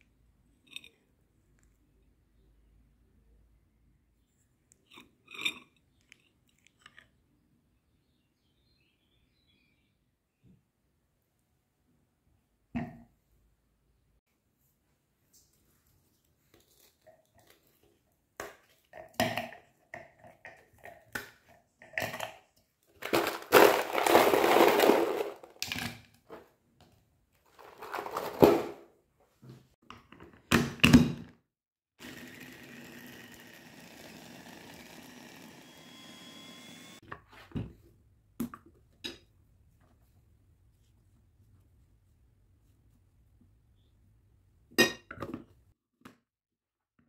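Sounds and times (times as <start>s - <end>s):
frozen fruit clattering in plastic bowl: 23.0s - 25.9s, 27.5s - 28.8s.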